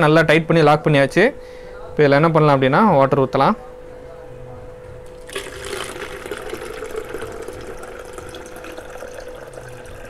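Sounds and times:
faint steady hum: 0.0 - 10.0
water pouring into plastic bottles: 5.1 - 10.0.

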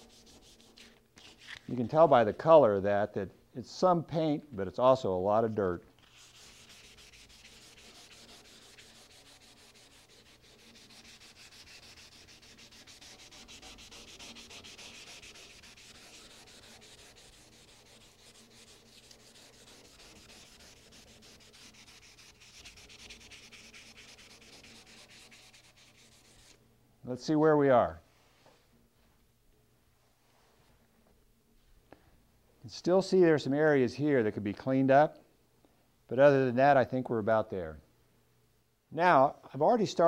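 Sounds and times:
wet sanding rubbing strokes: 0.0 - 1.6, 6.0 - 26.6.

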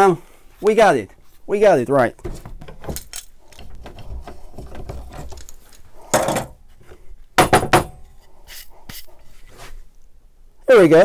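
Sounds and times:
clamps and boards knocking: 2.2 - 5.4, 7.4 - 8.0.

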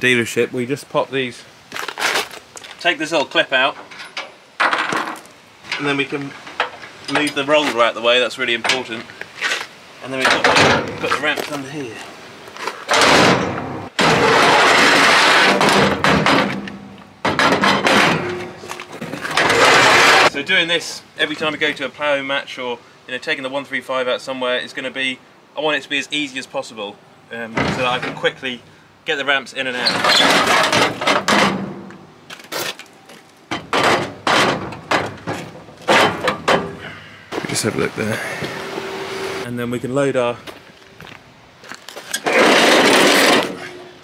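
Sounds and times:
metal ramps scraping and rattling: 12.8 - 20.3, 29.7 - 32.8, 42.0 - 44.0.

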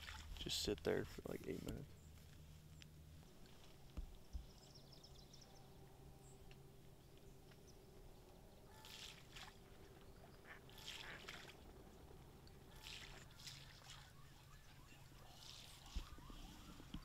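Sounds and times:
ducks calling faintly: 8.6 - 17.0.

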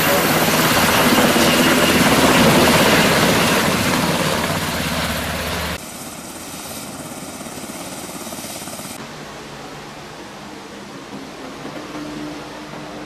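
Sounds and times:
helicopter rotor chop: 0.0 - 9.0
rushing hiss: 5.7 - 13.0.

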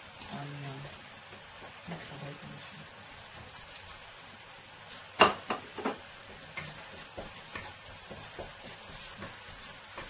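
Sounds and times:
onion and garlic sizzling in oil: 0.0 - 10.0
stirring scrapes and ticks: 3.2 - 4.0, 6.2 - 10.0
wooden spatula knocking: 5.2 - 10.0.

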